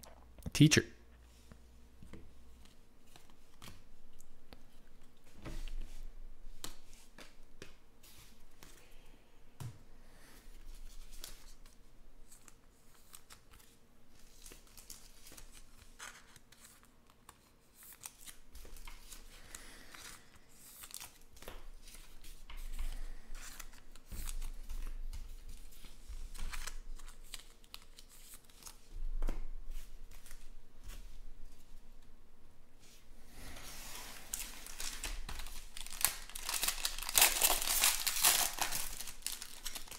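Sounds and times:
foil wrapper crinkling: 0:34.2 - 0:39.9.

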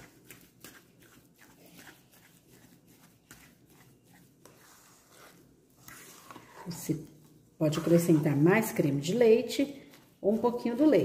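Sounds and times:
spatula scraping and squishing in bowl: 0:00.0 - 0:09.4.

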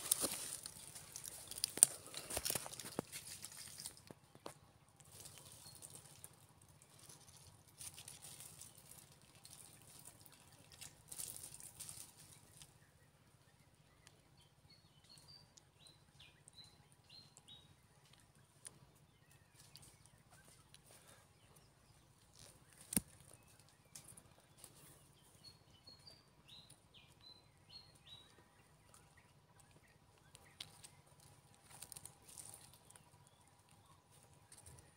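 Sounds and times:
songbird chirping: 0:00.0 - 0:34.9.

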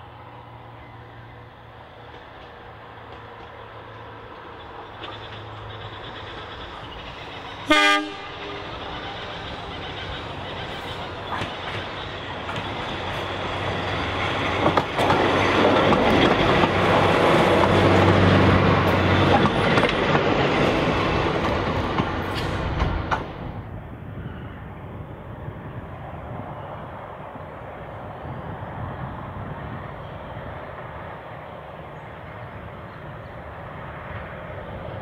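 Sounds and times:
diesel engine passing: 0:00.0 - 0:23.6
distant train: 0:00.0 - 0:35.0
wheels clicking over rail joints: 0:02.0 - 0:07.7, 0:08.3 - 0:23.6.

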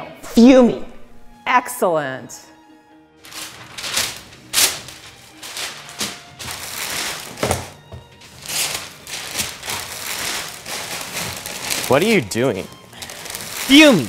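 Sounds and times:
background music: 0:00.0 - 0:14.0
packing paper rustling and crumpling: 0:03.2 - 0:14.0.

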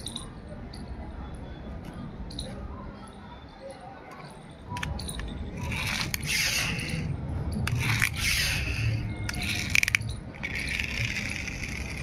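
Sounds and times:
small plastic clicks: 0:04.1 - 0:12.0
plastic wheels scraping on concrete: 0:05.6 - 0:12.0.

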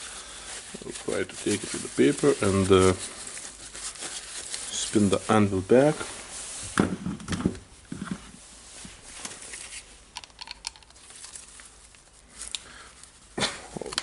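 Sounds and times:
glove rustling: 0:00.0 - 0:06.6.

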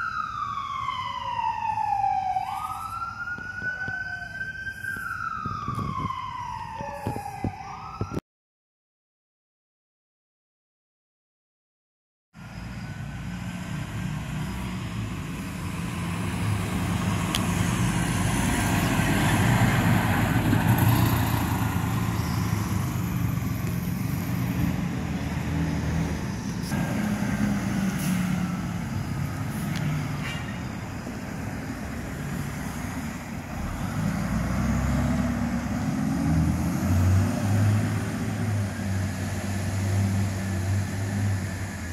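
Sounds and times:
fire engine driving past: 0:00.0 - 0:08.1, 0:12.4 - 0:41.9
vehicle engine accelerating: 0:12.4 - 0:41.9.

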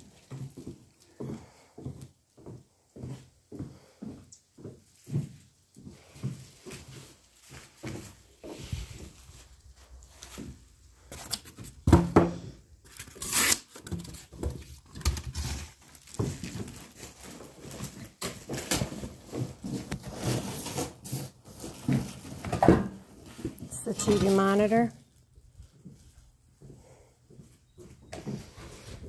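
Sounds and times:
cardboard and plastic wrap rustling: 0:04.9 - 0:26.5, 0:28.2 - 0:29.0.

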